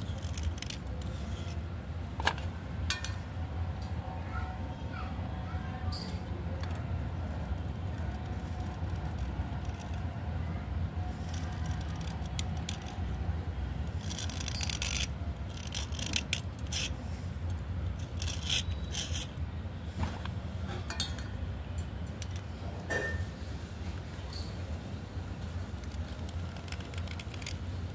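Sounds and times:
knife blade scraping slate pencil: 0.0s - 1.6s, 14.0s - 19.4s
steady low hum: 0.0s - 27.9s.

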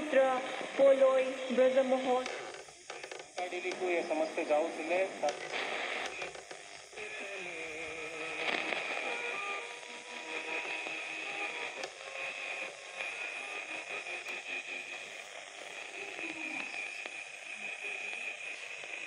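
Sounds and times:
radio static hiss: 0.0s - 19.0s
steady high whine: 0.0s - 19.0s.

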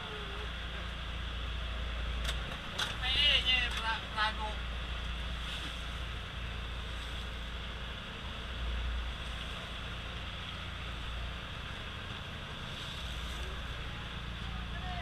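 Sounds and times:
boat engine rumbling: 0.0s - 15.0s.

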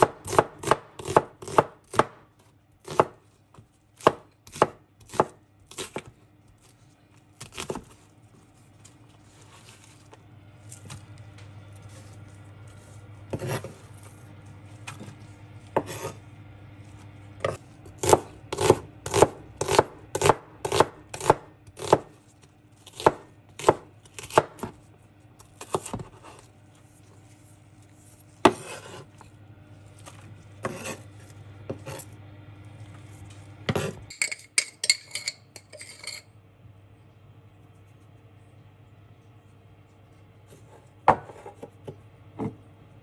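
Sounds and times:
knife slicing on wooden board: 13.3s - 13.8s, 28.1s - 29.2s, 30.0s - 31.1s, 31.7s - 32.1s.

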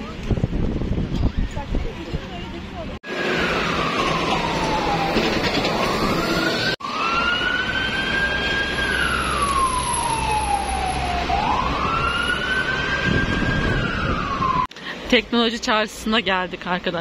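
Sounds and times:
low rumble of street traffic: 0.0s - 17.0s
emergency vehicle siren wailing: 3.0s - 14.7s.

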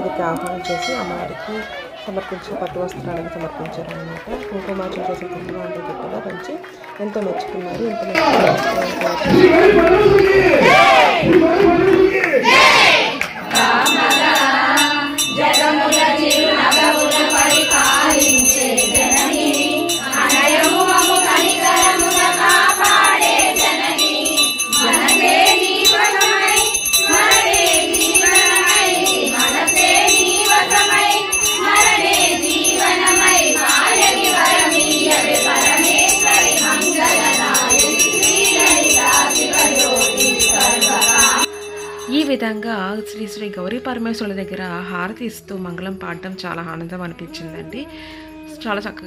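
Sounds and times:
women singing together: 0.0s - 45.1s
bell jingling rapidly: 13.5s - 42.4s.

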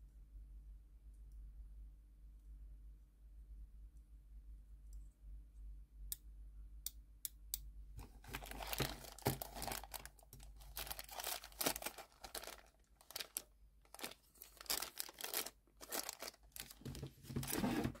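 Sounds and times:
plastic bag crinkling: 8.0s - 18.0s.

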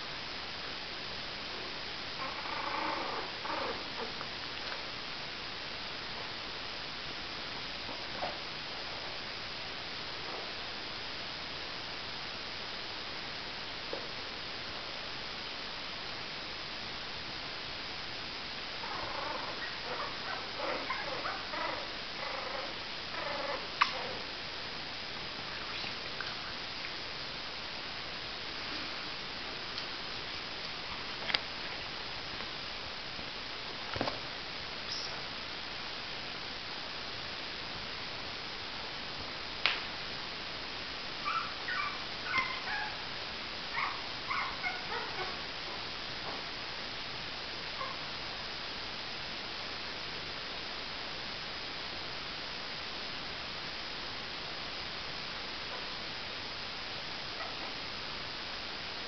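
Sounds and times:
steady hiss: 0.0s - 59.0s
puppies growling and grunting: 2.2s - 4.2s, 18.8s - 24.3s.

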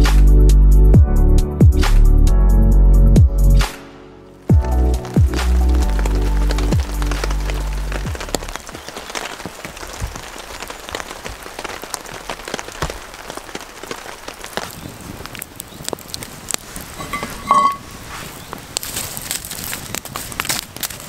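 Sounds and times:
music with deep bass: 0.0s - 3.8s, 4.5s - 8.2s
rain pattering on a tarp: 4.3s - 21.0s.

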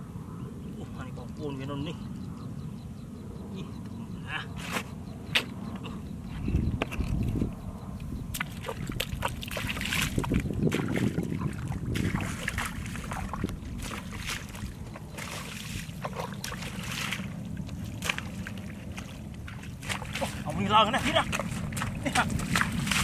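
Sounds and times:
bare feet splashing through mud: 8.3s - 23.0s
water sloshing in bucket: 8.4s - 23.0s.

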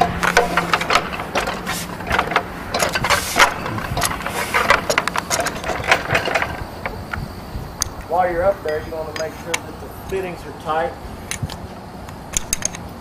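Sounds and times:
climbing gear knocking against pole: 0.0s - 8.0s
low hum: 0.0s - 10.1s.

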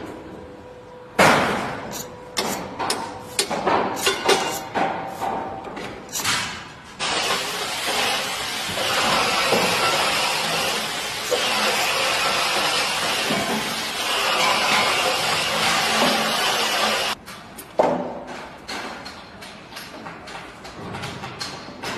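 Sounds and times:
electric grinder cutting plaster: 7.0s - 17.2s
sharp knocks and clatters: 17.2s - 21.9s.

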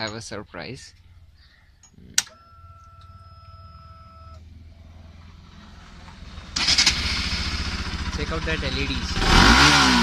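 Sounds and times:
motorcycle engine starting: 3.1s - 10.0s.

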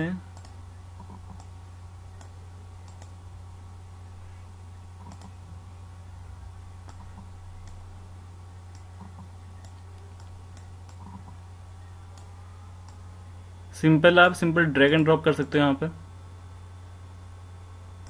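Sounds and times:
low electrical hum: 0.0s - 18.0s
computer mouse clicking: 0.4s - 1.5s, 2.2s - 3.2s, 5.0s - 5.3s, 6.8s - 7.8s, 8.7s - 11.4s.

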